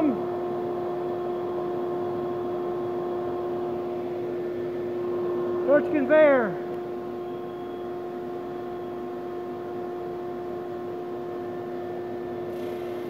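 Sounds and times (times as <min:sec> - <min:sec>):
drum sander humming and whining: 0:00.0 - 0:13.0.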